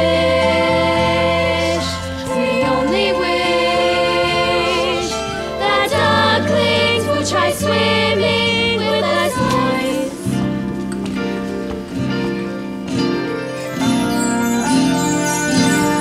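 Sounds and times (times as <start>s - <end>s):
live band playing show tune: 9.5s - 16.0s.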